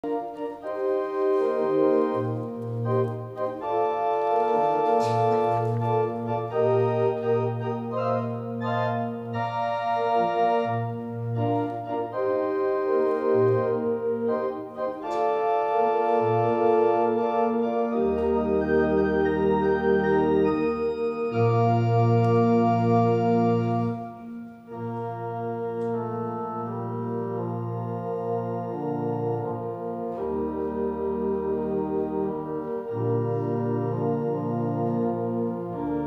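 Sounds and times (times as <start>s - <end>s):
church organ playing a hymn: 0.0s - 36.0s.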